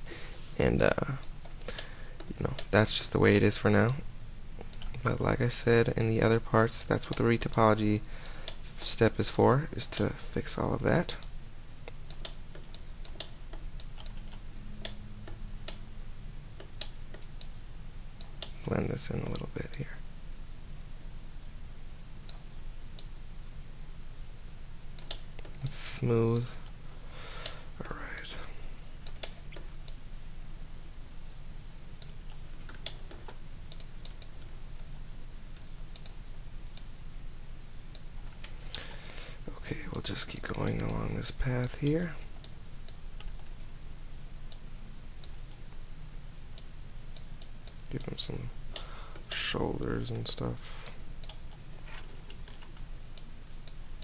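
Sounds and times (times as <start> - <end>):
low steady hum: 0.0 - 54.0
keyboard and mouse clicks: 11.9 - 15.8, 25.0 - 25.7, 29.0 - 30.0, 32.0 - 34.5, 35.9 - 36.9.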